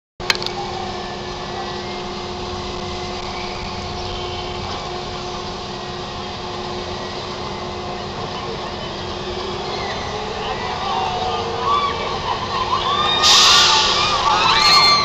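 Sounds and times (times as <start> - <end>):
ride machinery humming: 0.2 - 15.0.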